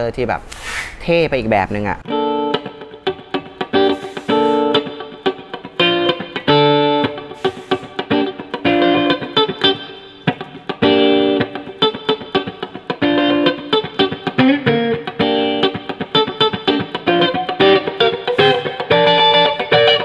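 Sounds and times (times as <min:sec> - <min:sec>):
picked single guitar notes: 0:02.0 - 0:20.0
electric guitar chords: 0:02.1 - 0:20.0
muted pick strokes: 0:03.8 - 0:05.0.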